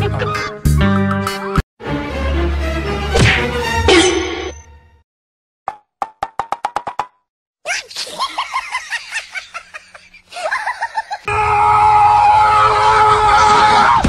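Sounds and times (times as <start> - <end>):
laughter: 7.7 - 11.3.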